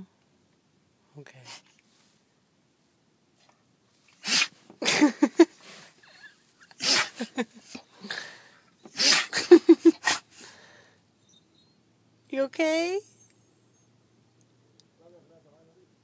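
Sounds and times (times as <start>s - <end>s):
dog sneezing: 1.4s - 1.7s, 4.1s - 5.8s, 6.6s - 10.4s.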